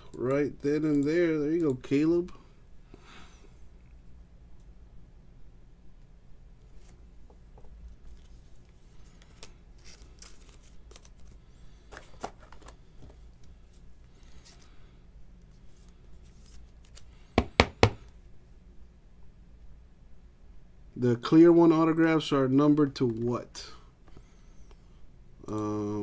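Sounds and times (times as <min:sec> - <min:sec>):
plastic sleeve rustling and scraping: 0:07.9 - 0:14.7
sharp knocks: 0:17.4 - 0:18.0.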